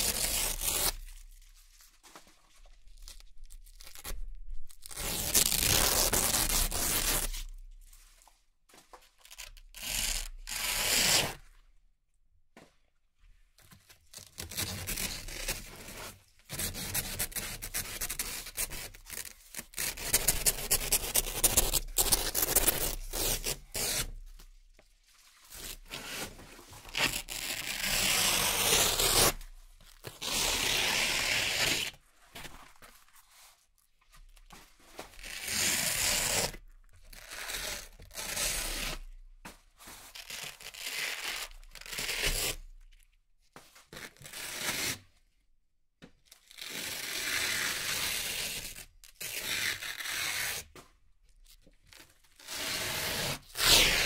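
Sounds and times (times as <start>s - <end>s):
velcro strips ripping apart: 26.9s - 29.5s, 51.9s - 54.0s.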